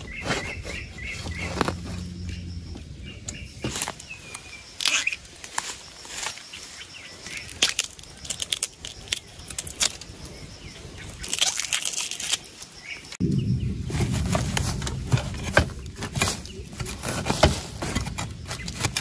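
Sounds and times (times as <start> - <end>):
leaf litter rustling and crunching: 0.0 - 2.6, 3.3 - 19.0
sharp snaps and crackles: 3.2 - 6.5, 7.2 - 13.2, 13.8 - 19.0.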